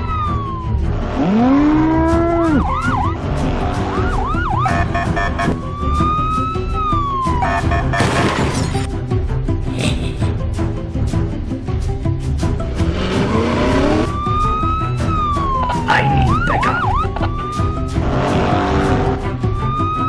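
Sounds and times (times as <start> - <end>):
police car siren: 0.0 - 8.3, 13.3 - 18.0, 19.4 - 20.0
background music with steady beat: 0.1 - 20.0.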